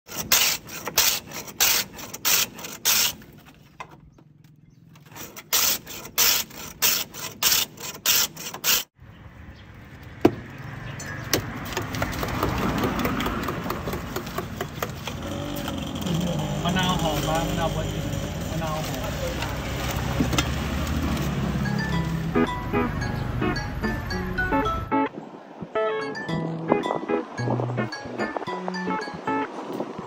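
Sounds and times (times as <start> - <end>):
ice rasping on a blade: 0.1 - 3.4, 5.0 - 8.9
street background noise: 0.1 - 30.0.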